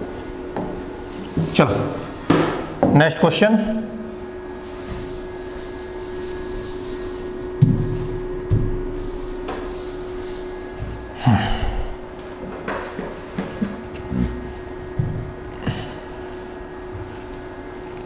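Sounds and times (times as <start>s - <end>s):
faint steady hum: 0.0s - 18.0s
wiping strokes on a board: 4.7s - 11.2s
soft thumps: 7.6s - 8.9s.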